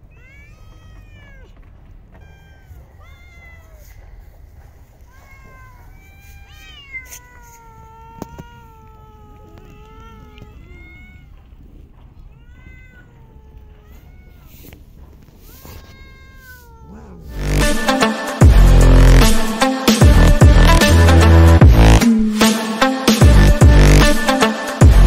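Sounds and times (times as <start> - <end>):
cats meowing: 0.0 - 18.2
loud electronic music: 17.4 - 25.0.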